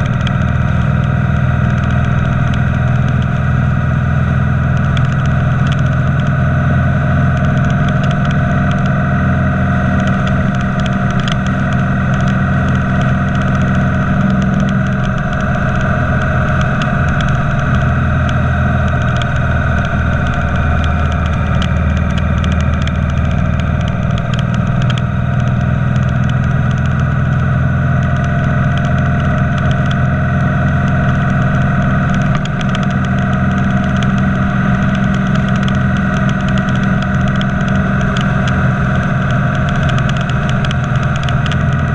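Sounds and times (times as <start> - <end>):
motorcycle engine cruising: 0.0 - 41.9.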